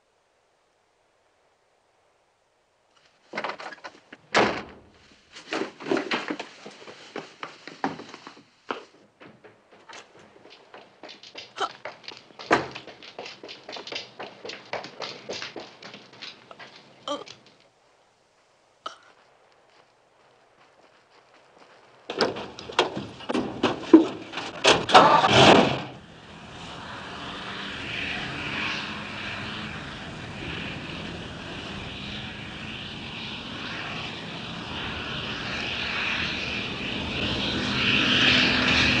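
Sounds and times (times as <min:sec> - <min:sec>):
engine and tyres on dirt road: 0:02.0 - 0:39.0
truck pulling off with sharp noises: 0:04.4 - 0:17.7, 0:21.5 - 0:39.0.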